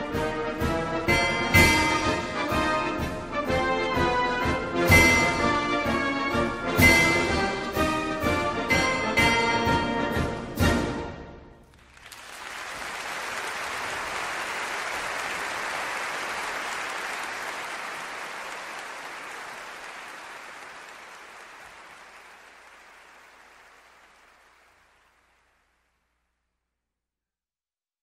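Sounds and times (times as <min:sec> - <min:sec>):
audience applause: 0:11.7 - 0:25.8.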